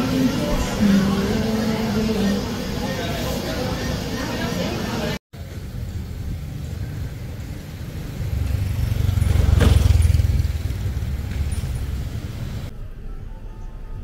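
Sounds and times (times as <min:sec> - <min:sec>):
vehicle passing by: 0:05.4 - 0:12.7.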